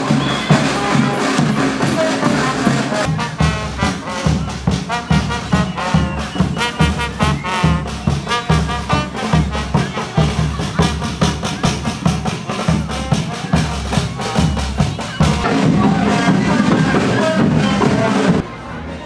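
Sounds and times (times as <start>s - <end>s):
horns playing melody: 0.0s - 18.4s.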